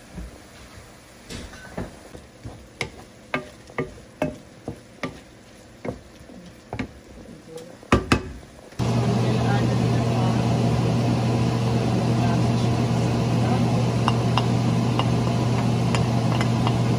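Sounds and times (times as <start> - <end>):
wooden spoon scraping a pan: 1.8 - 7.5.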